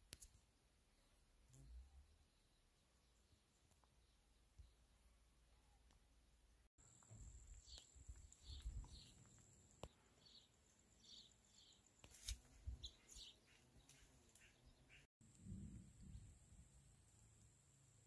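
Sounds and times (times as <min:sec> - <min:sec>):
faint bird chirping: 0:00.8 - 0:15.1.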